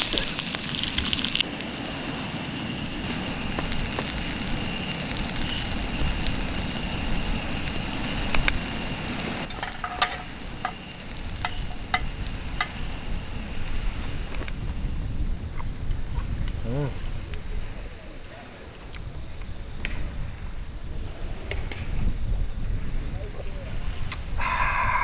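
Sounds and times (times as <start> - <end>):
asparagus sizzling in a frying pan: 0.0 - 15.5
tongs clicking on a pan: 9.5 - 12.8.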